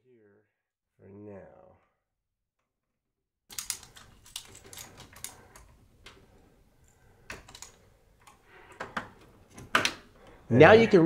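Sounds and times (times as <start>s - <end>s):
small metal parts clicking: 3.5s - 6.2s, 6.8s - 8.4s.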